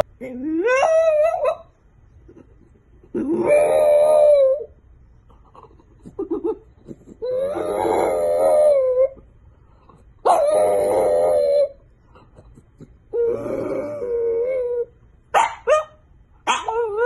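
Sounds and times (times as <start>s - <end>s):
dog whimpering: 0.0s - 1.7s, 2.3s - 4.7s, 5.4s - 9.3s, 10.2s - 15.0s, 16.5s - 17.0s
dog howling: 3.1s - 4.8s, 7.2s - 9.2s, 10.2s - 11.8s, 13.1s - 15.0s, 16.5s - 17.0s.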